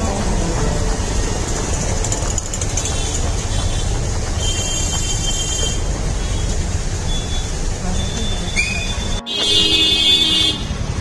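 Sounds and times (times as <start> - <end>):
low rumble of engines: 0.0 - 9.3
vehicle horn: 9.2 - 10.9.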